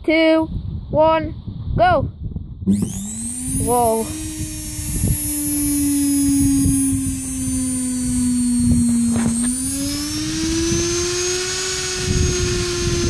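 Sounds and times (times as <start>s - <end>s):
motor humming with high whine: 2.6s - 13.0s.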